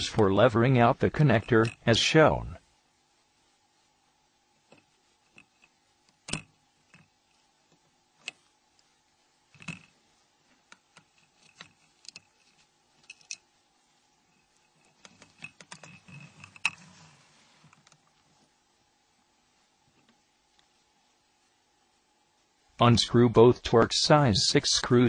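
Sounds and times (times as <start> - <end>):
metal tweezers clicking on parts: 1.4 - 1.9.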